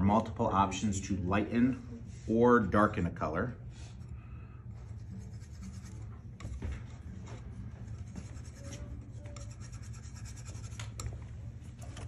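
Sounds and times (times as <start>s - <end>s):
palette knife scraping paint: 4.8s - 6.2s, 7.7s - 11.1s.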